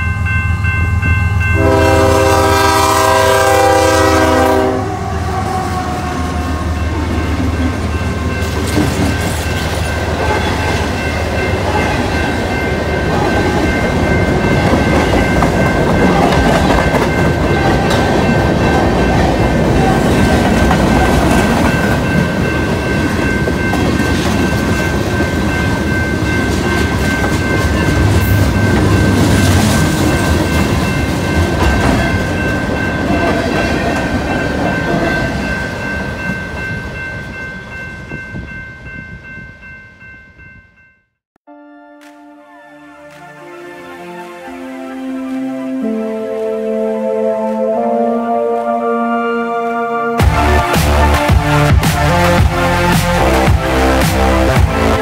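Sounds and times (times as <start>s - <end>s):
train wheels rumbling on rails: 5.0s - 37.4s
clickety-clack of rail cars: 7.3s - 37.3s.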